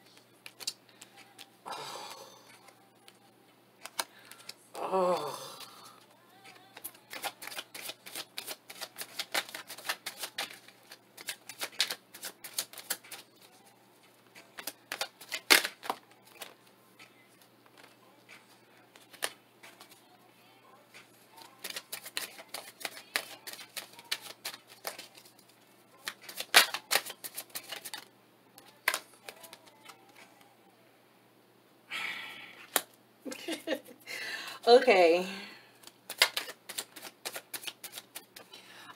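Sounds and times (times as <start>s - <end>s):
cards being shuffled: 0.0s - 1.5s, 3.8s - 4.6s, 6.4s - 13.6s, 14.2s - 16.6s, 17.4s - 20.0s, 20.9s - 30.4s, 35.8s - 38.6s.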